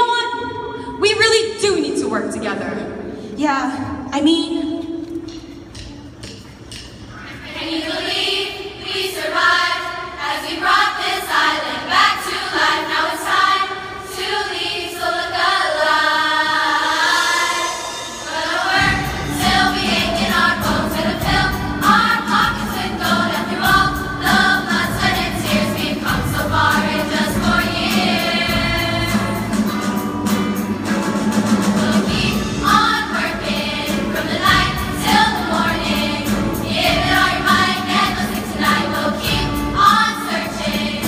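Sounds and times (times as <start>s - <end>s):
girls' choir singing: 7.2s - 29.8s, 31.4s - 41.0s
bass-heavy accompaniment: 17.0s - 41.0s.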